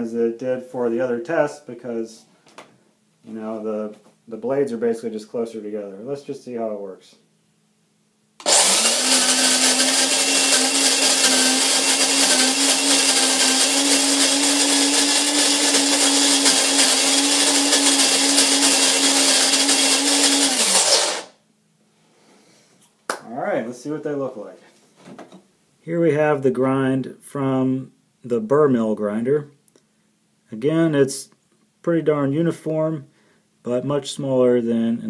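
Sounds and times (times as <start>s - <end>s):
coffee grinder grinding beans: 8.4s - 21.4s.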